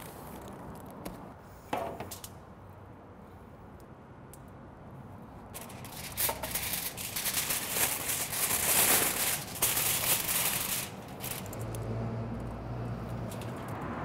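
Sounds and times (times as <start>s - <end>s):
aluminium foil crinkling: 5.5s - 11.8s.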